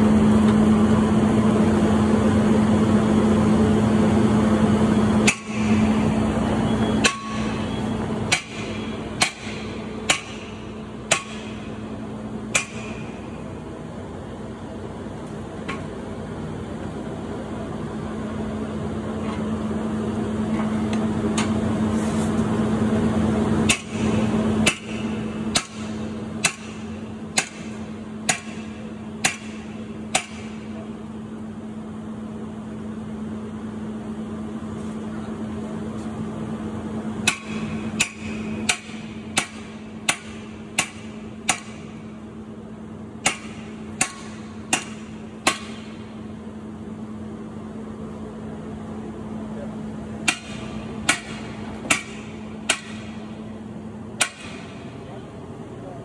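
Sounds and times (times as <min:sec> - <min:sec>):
steady low hum: 0:00.0 - 0:56.0
metal tools hammering on steel door: 0:07.0 - 0:11.8, 0:12.5 - 0:13.2, 0:23.7 - 0:30.6, 0:37.2 - 0:42.0, 0:43.2 - 0:46.0, 0:50.2 - 0:53.3.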